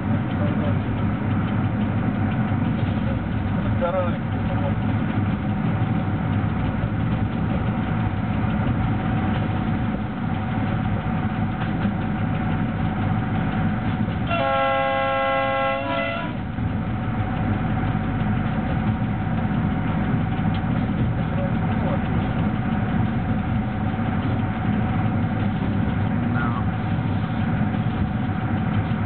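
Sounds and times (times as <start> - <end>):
train running gear rumble: 0.0 - 29.0
locomotive horn blast: 14.2 - 16.4.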